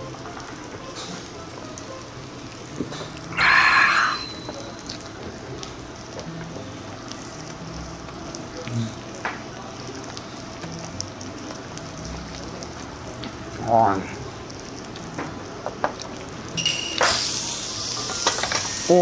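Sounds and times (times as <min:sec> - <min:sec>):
meat sizzling on a grill plate: 0:00.0 - 0:19.0
man's breathy exclamation: 0:03.3 - 0:04.3.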